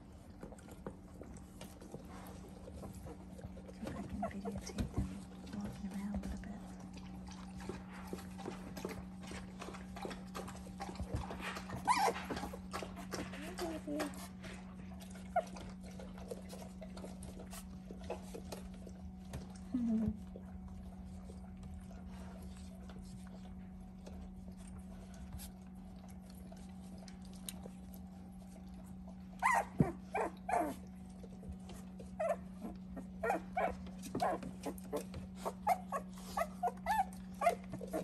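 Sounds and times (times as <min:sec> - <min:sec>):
steady low hum: 0:00.0 - 0:38.0
puppies whimpering and squealing: 0:02.6 - 0:06.6, 0:11.0 - 0:14.4, 0:15.0 - 0:18.4, 0:28.5 - 0:38.0.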